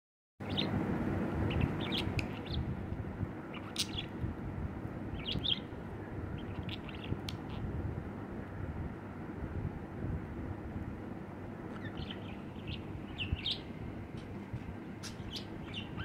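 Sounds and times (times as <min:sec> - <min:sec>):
budgerigar chirping and warbling: 0:00.4 - 0:00.7, 0:01.5 - 0:02.7, 0:03.5 - 0:04.1, 0:05.2 - 0:05.7, 0:06.4 - 0:07.6, 0:11.7 - 0:13.7, 0:15.0 - 0:16.0.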